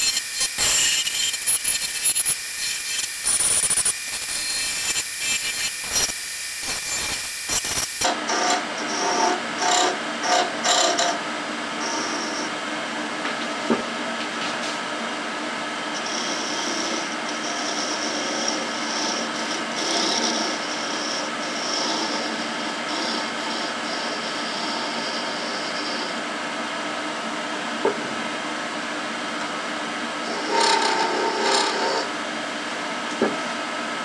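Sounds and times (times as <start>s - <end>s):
turning tool cutting wood: 0.0s - 11.1s, 30.3s - 32.1s
wood lathe running: 30.2s - 32.1s.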